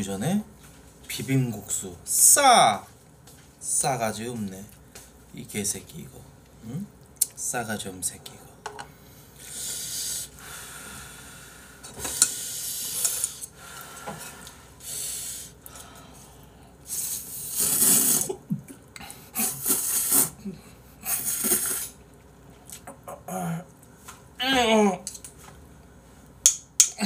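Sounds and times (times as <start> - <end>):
person slurping noodles: 16.9 - 18.4, 19.3 - 20.4, 21.0 - 22.0.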